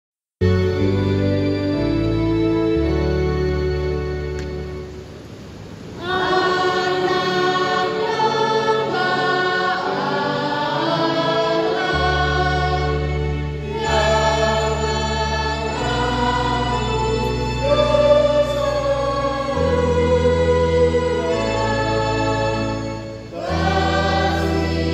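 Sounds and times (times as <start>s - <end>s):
low electronic keyboard notes: 0.4s - 5.2s
church choir singing: 6.0s - 24.9s.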